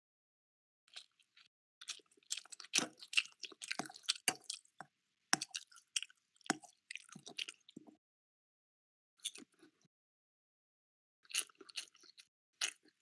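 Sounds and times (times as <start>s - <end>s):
person chewing with mouth smacks: 0.9s - 4.8s, 5.4s - 8.0s, 11.2s - 13.0s.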